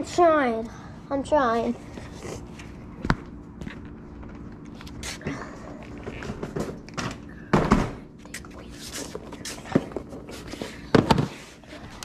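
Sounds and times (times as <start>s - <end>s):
plastic boxes knocking and thumping: 10.9s - 11.4s.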